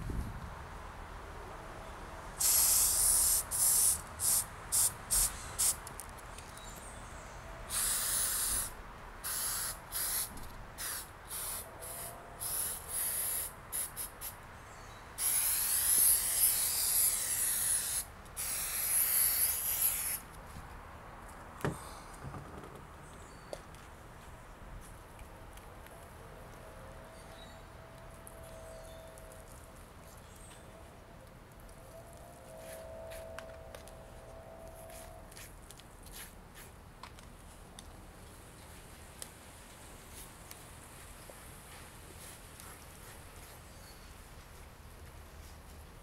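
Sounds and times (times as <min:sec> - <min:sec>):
spray paint can hissing: 0:02.4 - 0:05.9, 0:07.7 - 0:14.4, 0:15.2 - 0:20.2.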